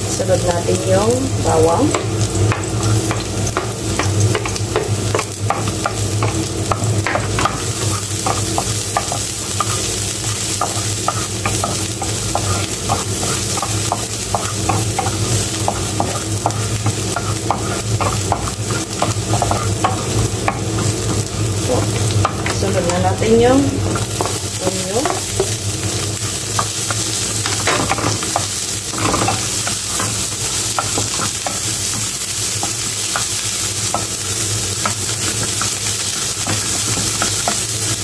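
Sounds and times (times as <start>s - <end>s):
garlic sizzling in oil: 0.0s - 38.0s.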